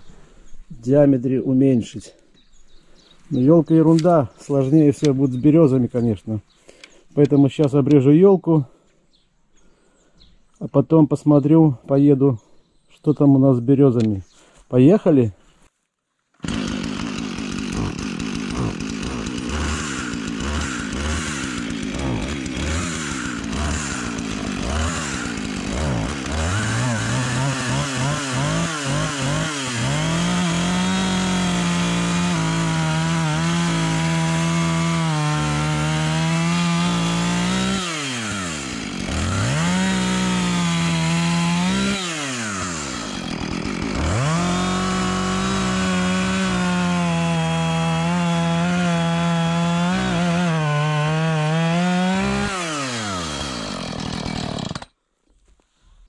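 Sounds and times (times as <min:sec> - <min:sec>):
chainsaw cutting log: 0:16.3 - 0:55.0.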